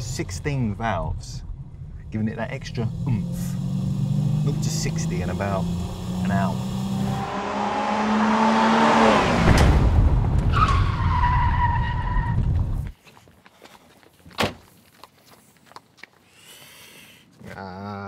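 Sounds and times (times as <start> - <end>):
car engine passing at speed: 2.4 - 11.0.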